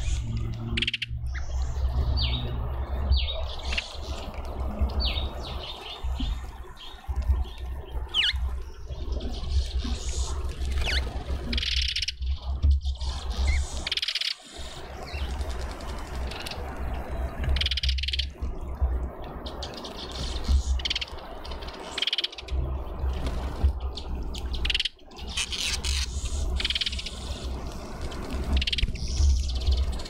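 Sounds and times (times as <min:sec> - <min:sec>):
steady low rumble: 0:00.0 - 0:11.6
small birds chirping: 0:28.5 - 0:30.0.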